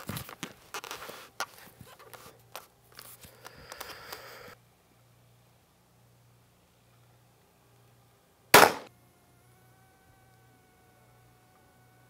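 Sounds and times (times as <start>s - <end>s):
rifle handling clicks and scrapes: 0.0s - 4.3s.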